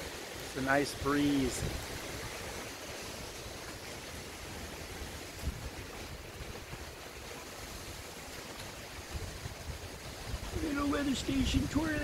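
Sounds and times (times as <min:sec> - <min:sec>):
gusty wind: 0:00.0 - 0:12.0
leaves rustling: 0:00.0 - 0:12.0
wind buffeting microphone: 0:00.0 - 0:12.0.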